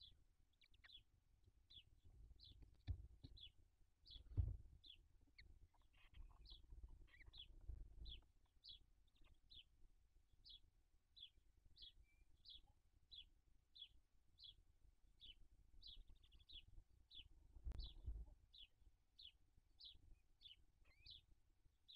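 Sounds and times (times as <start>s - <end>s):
low thump: 4.3s - 4.7s.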